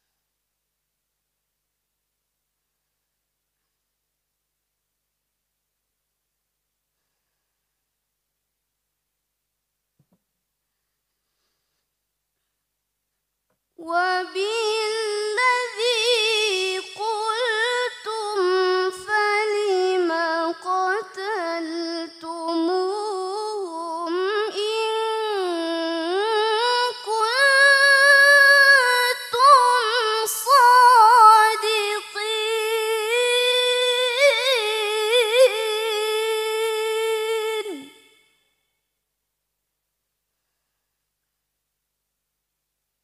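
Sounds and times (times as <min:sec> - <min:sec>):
woman reciting melodically: 0:13.8 - 0:38.1.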